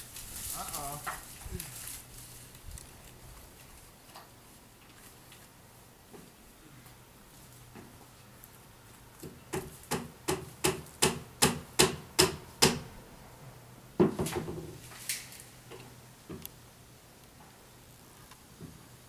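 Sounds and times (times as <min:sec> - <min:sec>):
sharp strikes on wood: 0:09.2 - 0:12.9.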